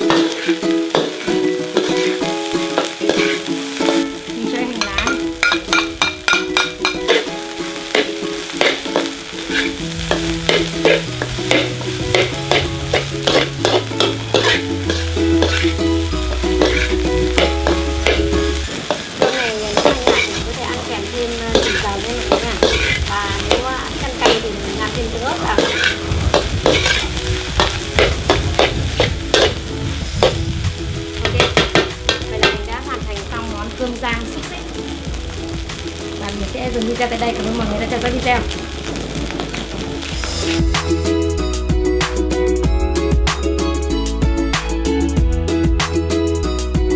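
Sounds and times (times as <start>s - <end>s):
metal spatula scraping a wok: 0.0s - 4.2s, 4.9s - 32.7s
rice sizzling: 0.0s - 46.9s.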